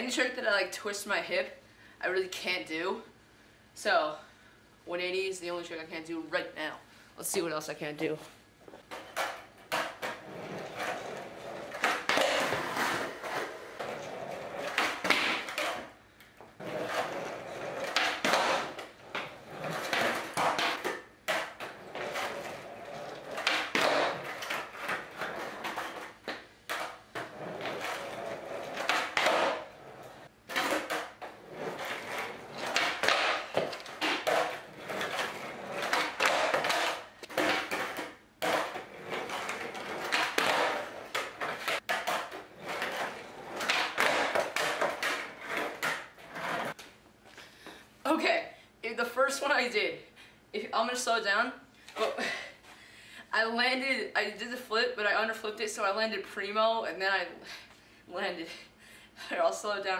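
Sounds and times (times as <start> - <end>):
skateboard rolling on concrete: 8.7 - 46.9
skateboard deck clacks: 14.6 - 15.8, 23.2 - 29.7, 30.5 - 46.8.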